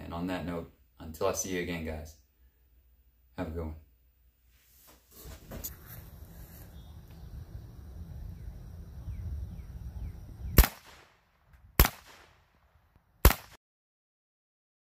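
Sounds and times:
wind on microphone: 5.7s - 10.7s
rifle shots: 10.5s - 13.6s.

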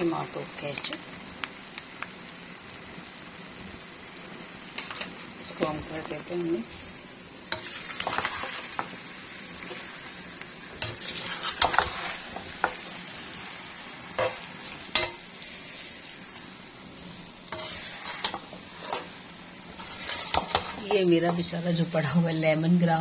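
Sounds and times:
food frying sizzle: 0.0s - 23.0s
metal spatula scraping pan: 7.5s - 8.9s, 10.8s - 12.8s, 17.4s - 21.5s.

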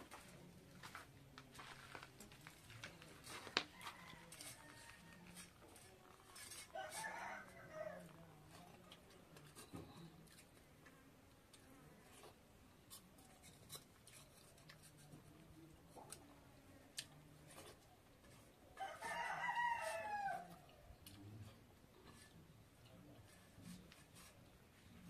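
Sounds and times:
rooster crowing: 3.7s - 5.5s, 6.7s - 8.1s, 18.8s - 20.7s.

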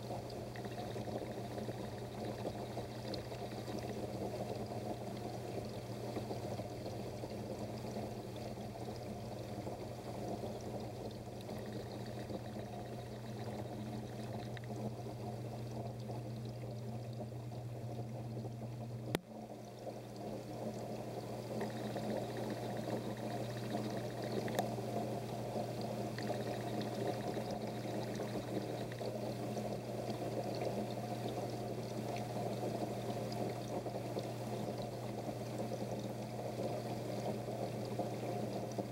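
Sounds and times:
low electric hum: 0.0s - 38.9s.

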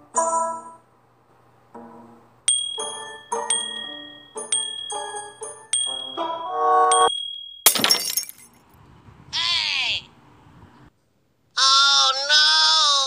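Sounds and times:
bell-like struck notes music: 2.5s - 7.7s.

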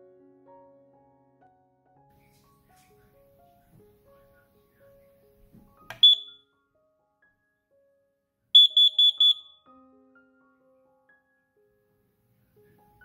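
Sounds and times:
high-pitched alarm beeps: 6.0s - 6.4s, 8.6s - 9.6s.

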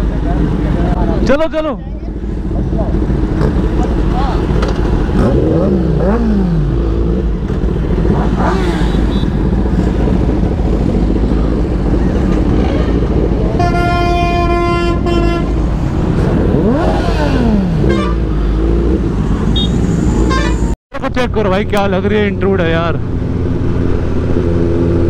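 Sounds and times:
motorcycle engines revving: 0.0s - 20.8s, 21.5s - 25.0s
vehicle horn: 8.8s - 9.4s, 13.5s - 15.6s, 17.8s - 18.5s, 19.5s - 20.8s.

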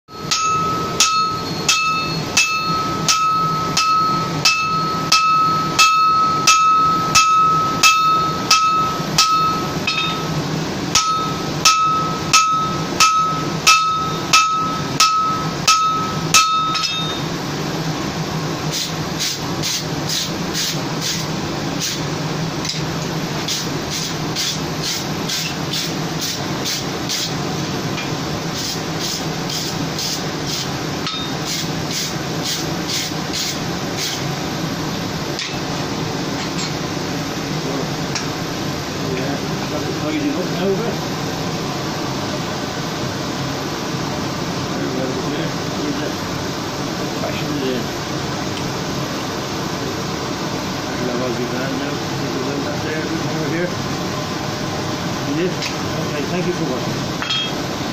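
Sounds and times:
hammer striking steel on anvil: 0.1s - 17.3s, 31.0s - 31.7s, 35.4s - 35.7s, 57.2s - 57.6s
steady low hum: 0.1s - 57.9s.

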